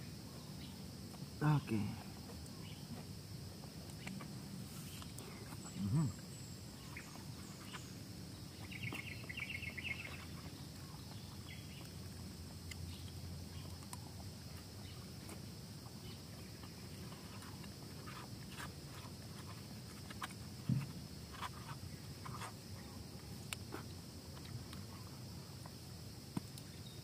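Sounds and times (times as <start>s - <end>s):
bird chirping trill: 5.6s - 11.9s.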